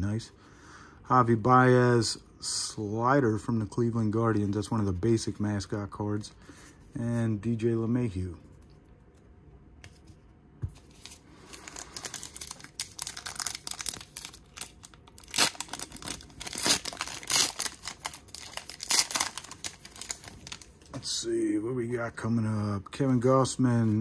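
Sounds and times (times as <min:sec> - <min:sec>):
foil wrapper tearing and crinkling: 0:11.0 - 0:20.8.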